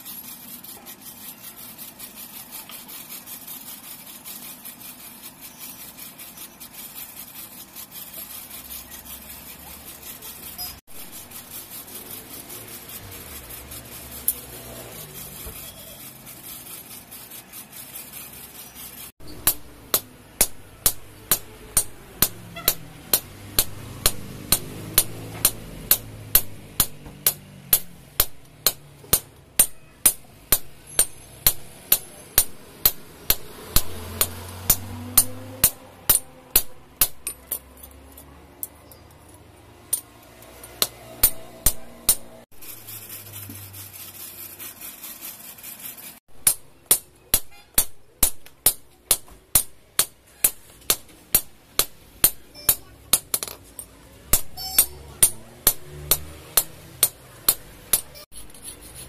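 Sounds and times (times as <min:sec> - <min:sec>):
hammer striking iron on anvil: 0:19.2 - 0:37.6, 0:40.7 - 0:42.4, 0:46.4 - 0:53.6, 0:54.3 - 0:58.2.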